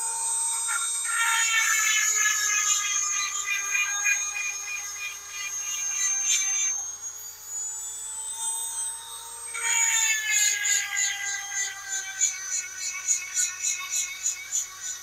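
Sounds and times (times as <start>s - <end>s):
chain sharpener grinding whine: 0.0s - 15.0s.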